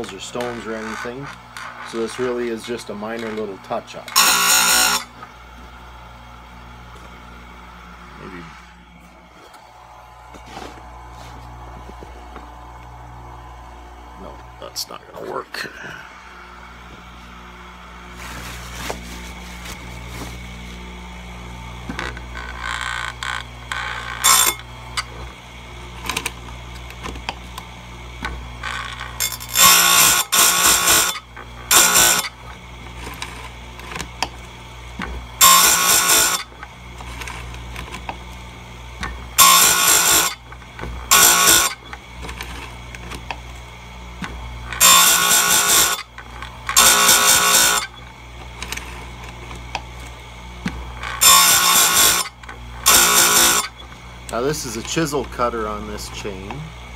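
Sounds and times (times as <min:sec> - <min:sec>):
harsh grinding bursts: 0:00.0 - 0:06.0, 0:21.6 - 0:56.8
grinder motor humming: 0:00.0 - 0:56.9.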